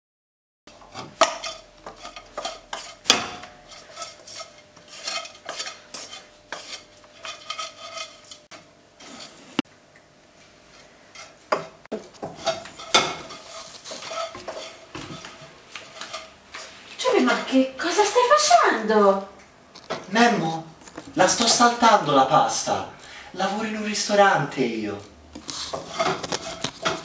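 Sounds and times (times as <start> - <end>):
utensil scraping frying pan: 0.7 - 9.6, 10.6 - 18.4, 25.4 - 27.0.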